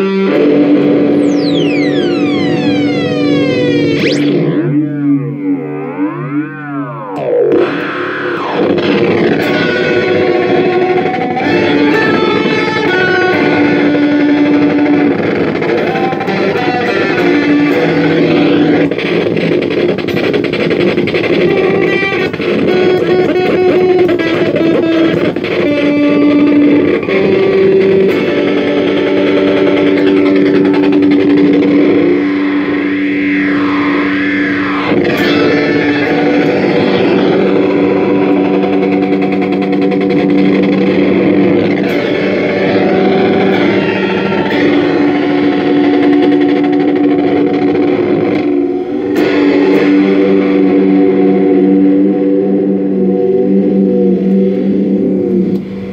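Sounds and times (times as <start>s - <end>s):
electric guitar with flanger effect: 0.0s - 55.9s.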